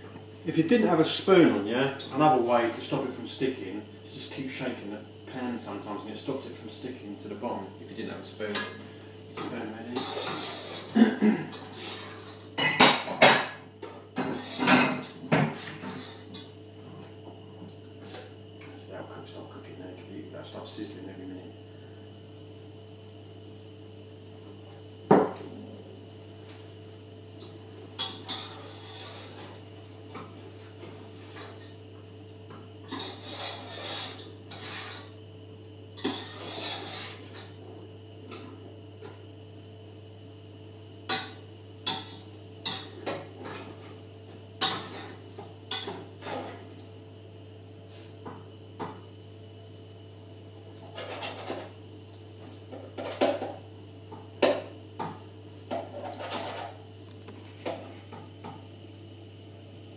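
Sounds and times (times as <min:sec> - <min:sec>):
steady low hum: 0:00.0 - 0:59.9
pan and utensils clattering: 0:09.4 - 0:13.6, 0:28.0 - 0:29.6, 0:32.8 - 0:35.1, 0:36.0 - 0:37.6, 0:41.1 - 0:43.8, 0:44.6 - 0:46.6, 0:50.8 - 0:51.8, 0:55.7 - 0:56.8.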